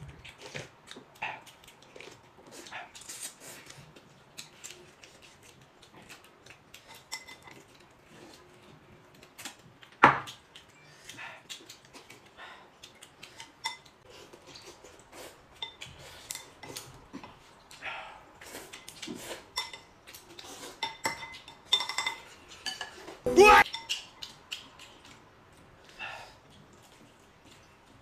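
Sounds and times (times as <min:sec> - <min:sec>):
utensils clinking against bowls: 0:20.8 - 0:24.0.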